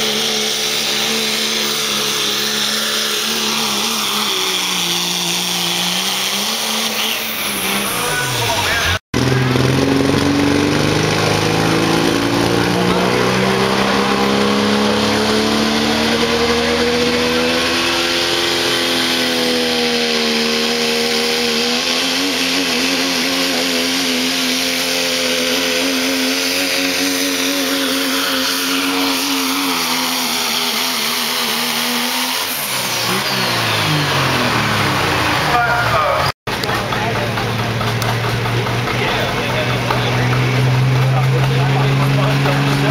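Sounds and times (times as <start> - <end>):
diesel truck engine straining: 0.0 - 42.9.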